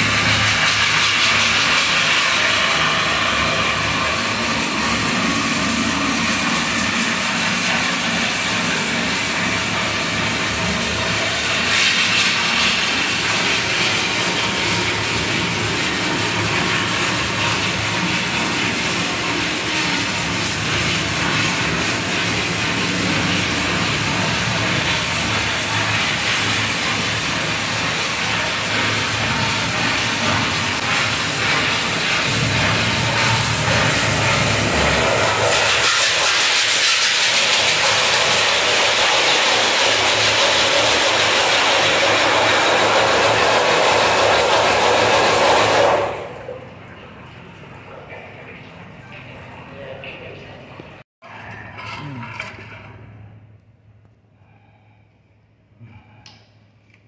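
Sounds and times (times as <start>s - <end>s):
loud hissing rushing noise: 0.0s - 9.8s, 32.2s - 46.4s
low hum: 29.2s - 36.7s.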